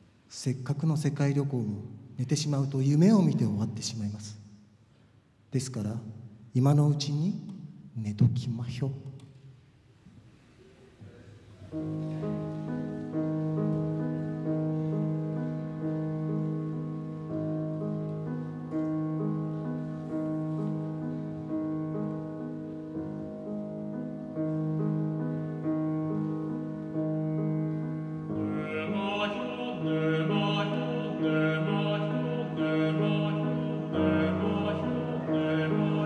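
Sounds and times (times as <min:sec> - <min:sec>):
grand piano playing: 0:11.6 - 0:36.0
classical singing voice: 0:25.5 - 0:36.0.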